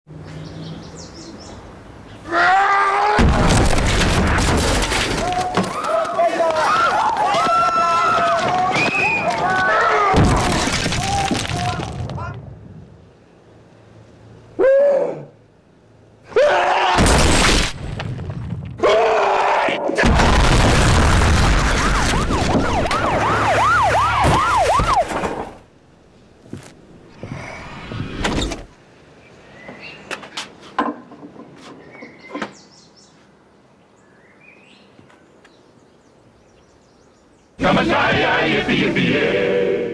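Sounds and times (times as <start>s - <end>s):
loud crashing din: 3.2s - 5.7s, 10.1s - 12.0s, 20.0s - 23.3s
rising and falling wail: 18.8s - 25.1s.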